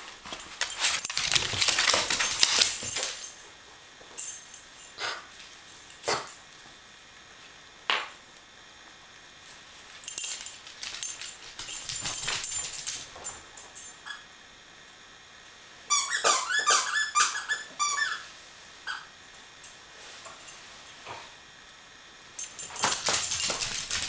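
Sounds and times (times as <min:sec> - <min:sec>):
squeaky toy squeaking: 0:15.9 - 0:18.2.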